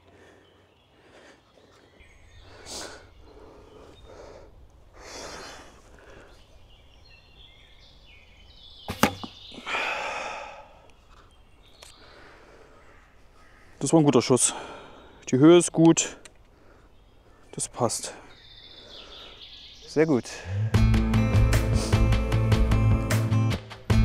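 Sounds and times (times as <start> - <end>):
bow shot double crack: 8.9 - 9.4.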